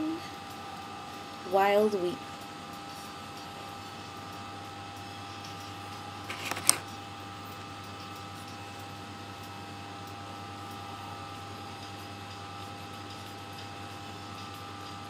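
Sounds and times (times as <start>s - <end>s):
plastic compact snapping shut: 6.3s - 6.8s
plastic compact clicking: 6.3s - 6.9s.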